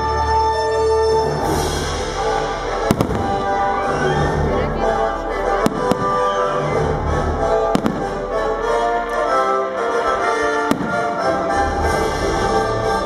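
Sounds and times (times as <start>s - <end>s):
loud music with sustained notes: 0.0s - 13.0s
fireworks bursting: 1.6s - 4.8s, 5.4s - 9.3s, 10.2s - 13.0s.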